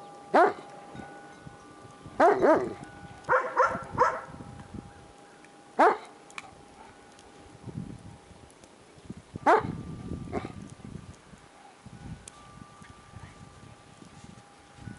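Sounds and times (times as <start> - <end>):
large dog barking: 0.3 - 0.7, 2.2 - 4.4, 5.8 - 6.2, 9.4 - 9.8.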